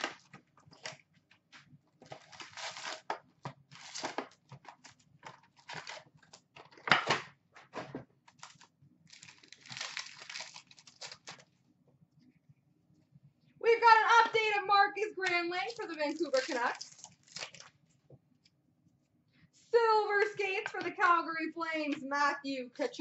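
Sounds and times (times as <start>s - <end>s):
card packs crinkling and rustling: 0.0s - 7.0s, 7.7s - 11.5s.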